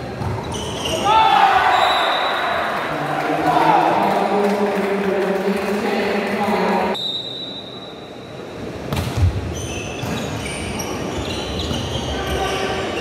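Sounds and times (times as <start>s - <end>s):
shoes squeaking on court: 0.1s - 1.1s, 9.2s - 13.0s.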